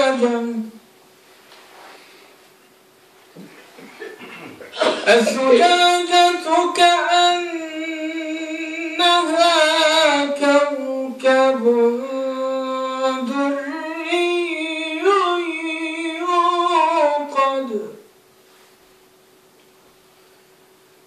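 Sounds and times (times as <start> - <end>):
man chanting recitation: 0.0 - 0.8, 5.0 - 18.0.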